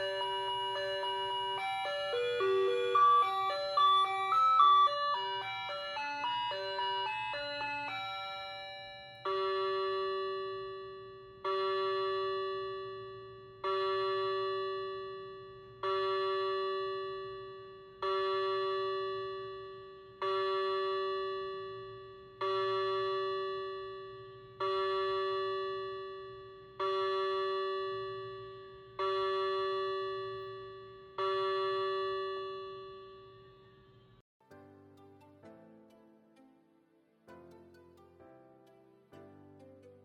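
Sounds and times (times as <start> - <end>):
clock bell strikes: 0.0 - 12.1
tinkling clock chime melody: 0.0 - 16.4.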